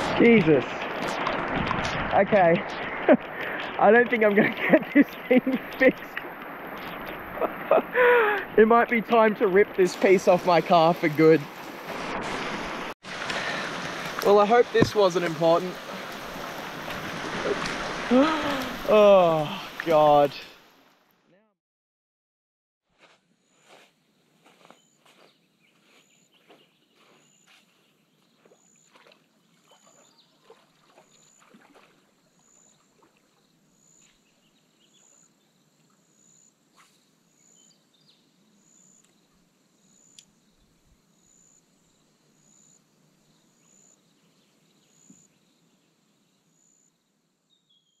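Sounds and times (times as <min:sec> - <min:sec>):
footsteps on wet mud: 0:00.0 - 0:18.9, 0:23.0 - 0:32.0
faint high chirp: 0:24.6 - 0:27.8, 0:47.5 - 0:48.0.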